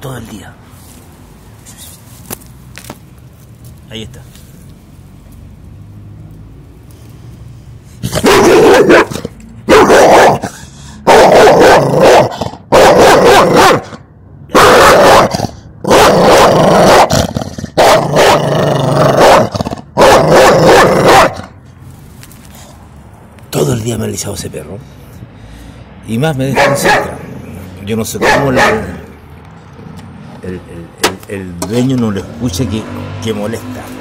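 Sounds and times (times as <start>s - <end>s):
dog barking loudly: 8.0s - 21.6s, 26.5s - 27.5s, 28.2s - 29.2s.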